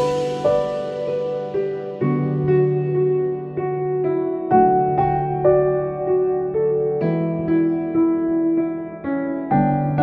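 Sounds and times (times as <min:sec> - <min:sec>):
slow relaxing music: 0:00.0 - 0:10.0.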